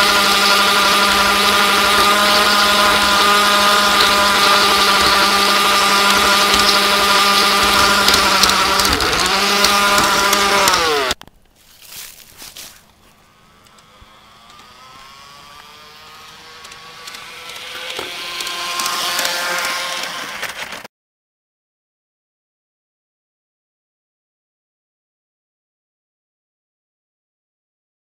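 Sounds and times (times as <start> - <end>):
model train motor whining: 0.0 - 11.2, 12.6 - 20.9.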